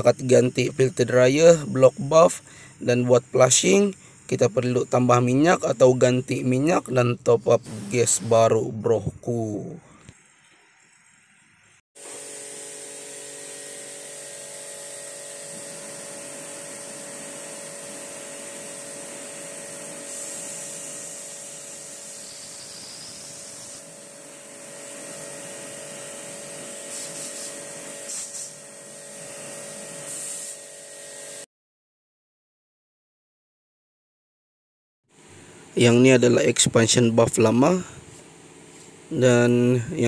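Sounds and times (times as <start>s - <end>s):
pressure washer motor whine: 0.0s - 10.8s, 12.0s - 31.4s
water jet spray hiss: 7.6s - 8.5s, 20.0s - 24.0s, 26.3s - 28.6s.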